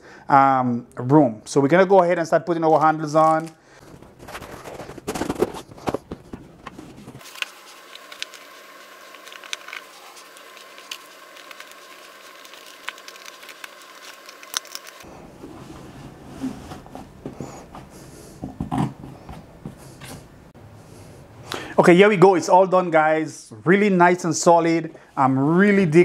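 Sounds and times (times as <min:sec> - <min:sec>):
fabric rustling and scraping: 0:03.8 - 0:17.9.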